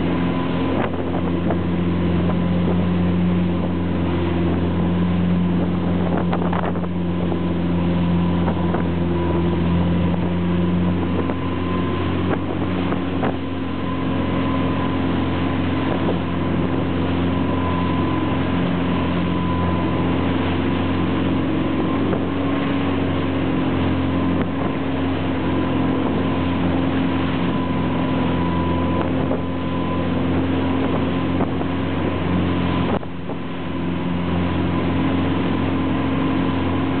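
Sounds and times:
boat engine droning: 0:00.0 - 0:37.0
rushing boat wake: 0:00.0 - 0:37.0
wind buffeting microphone: 0:00.0 - 0:37.0.

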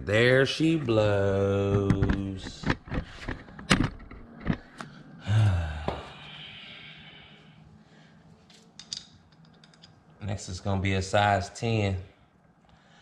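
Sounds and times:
man sighing heavily: 0:05.2 - 0:07.3
tools clicking on metal: 0:08.8 - 0:10.0.

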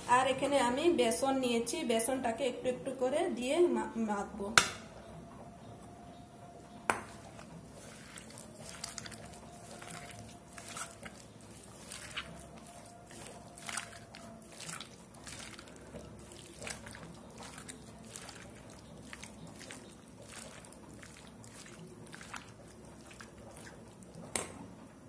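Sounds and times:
wet squelches of hand mixing: 0:07.0 - 0:24.5.

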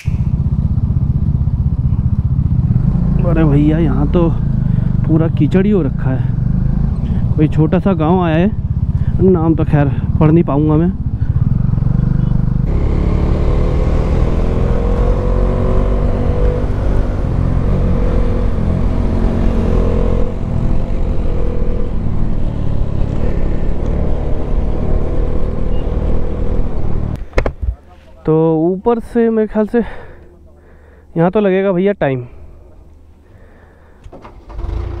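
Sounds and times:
motorcycle engine running: 0:00.0 - 0:27.2.

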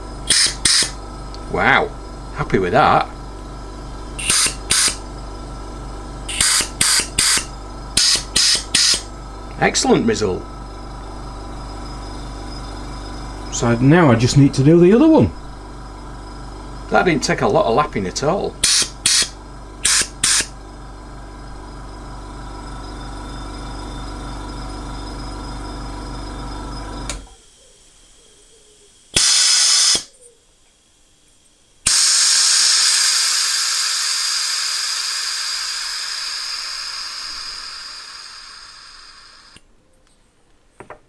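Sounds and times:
air compressor motor humming: 0:00.0 - 0:28.3, 0:28.9 - 0:30.2, 0:30.9 - 0:39.7
compressed air hiss: 0:00.2 - 0:01.0, 0:04.2 - 0:05.0, 0:06.3 - 0:09.1, 0:18.6 - 0:20.5, 0:29.1 - 0:30.1, 0:31.9 - 0:39.6.

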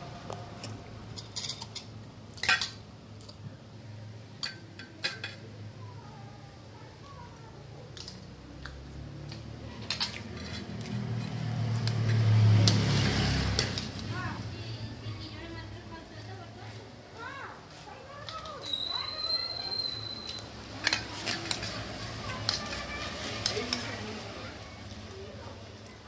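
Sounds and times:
spoons clinking against bowls: 0:01.1 - 0:02.8, 0:04.4 - 0:05.5, 0:09.8 - 0:14.2, 0:18.2 - 0:24.1.

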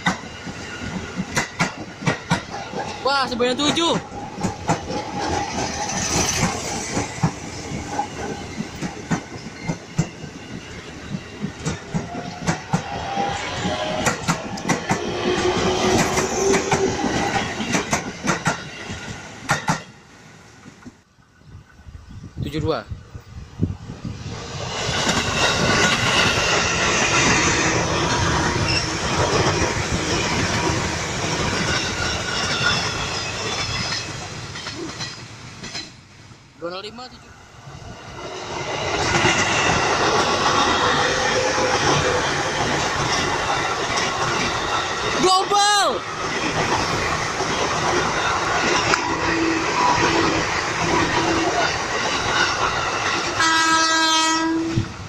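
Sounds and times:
wheels clacking over rail joints: 0:00.0 - 0:20.0, 0:38.8 - 0:45.3
electric train passing: 0:00.0 - 0:55.0.

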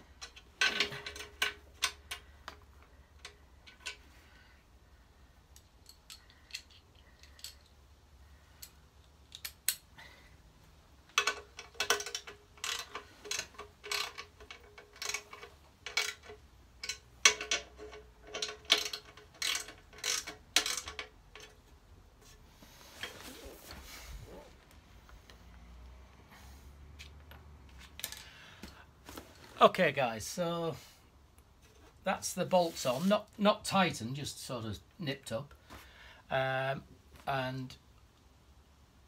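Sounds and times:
socket ratchet clicking: 0:11.1 - 0:21.6.

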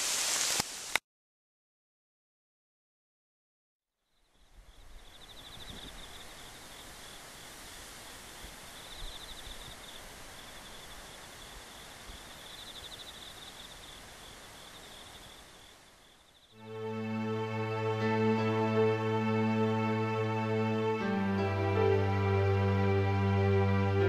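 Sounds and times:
steady outdoor hiss: 0:00.0 - 0:01.0, 0:04.0 - 0:24.0
insects trilling: 0:04.0 - 0:16.6.

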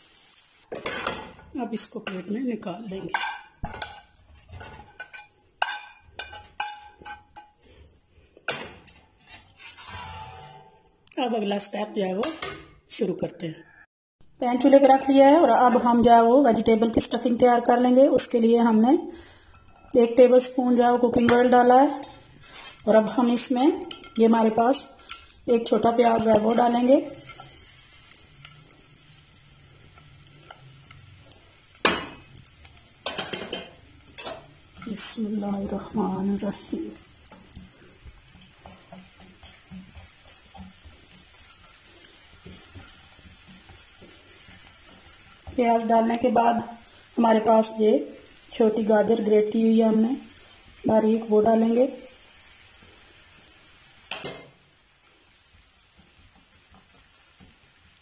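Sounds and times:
onion sizzling in oil: 0:00.0 - 0:13.2, 0:14.3 - 0:58.0
spatula clattering in pan: 0:00.7 - 0:02.3, 0:03.1 - 0:07.6, 0:23.8 - 0:24.4, 0:31.7 - 0:35.6, 0:36.4 - 0:46.2, 0:54.1 - 0:54.6.

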